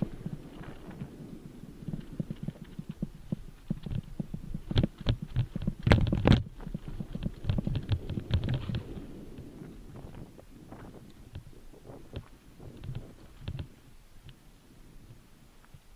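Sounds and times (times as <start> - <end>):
mountain bike rattling and knocking: 0.0 - 9.0.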